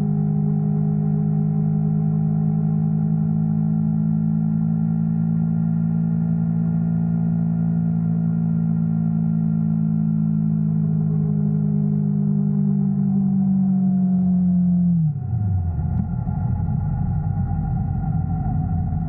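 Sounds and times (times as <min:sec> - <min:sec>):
motorcycle engine humming: 0:09.0 - 0:19.0.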